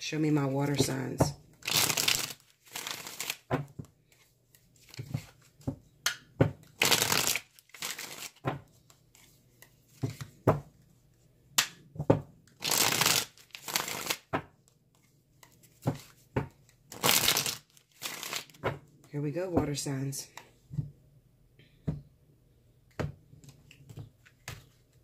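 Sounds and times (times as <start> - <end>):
cards being shuffled: 0.6 - 10.9, 12.5 - 18.7, 23.4 - 25.0.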